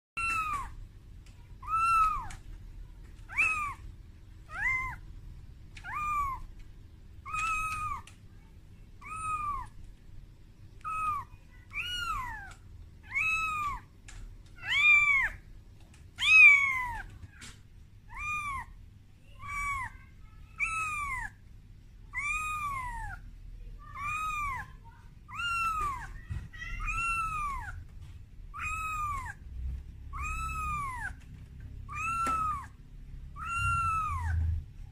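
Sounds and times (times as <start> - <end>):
kitten meowing: 0.2 - 0.8, 1.6 - 2.4, 3.2 - 3.8, 4.5 - 5.0, 5.8 - 6.6, 7.2 - 8.2, 9.0 - 9.8, 10.8 - 13.9, 14.6 - 15.4, 16.2 - 17.5, 18.1 - 18.8, 19.4 - 21.4, 22.1 - 23.2, 23.9 - 27.9, 28.5 - 29.4, 30.1 - 31.2, 31.8 - 34.6.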